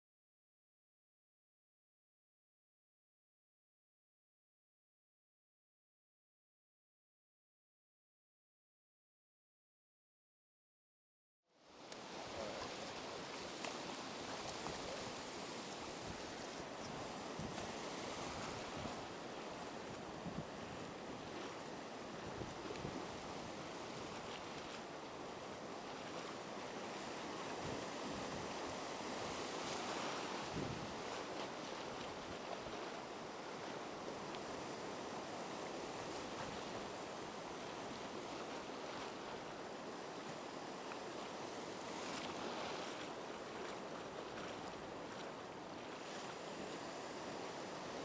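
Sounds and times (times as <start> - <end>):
surf washing up beach: 11.6 - 48.0
wind on microphone: 12.2 - 24.9, 26.9 - 39.6.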